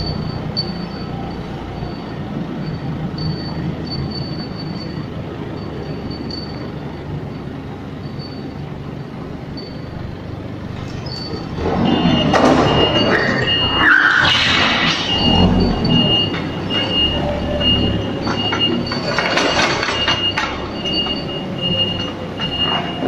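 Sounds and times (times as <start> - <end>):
forklift engine running: 0.0 - 23.0
short high squeals: 10.9 - 19.1.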